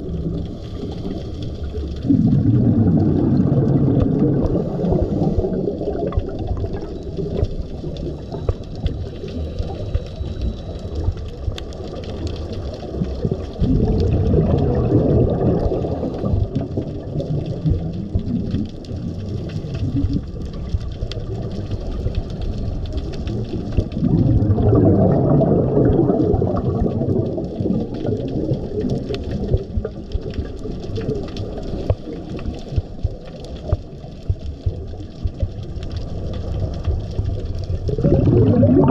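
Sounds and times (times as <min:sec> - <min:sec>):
bubbling rush: 0:00.0 - 0:38.9
low underwater rumble: 0:00.0 - 0:38.9.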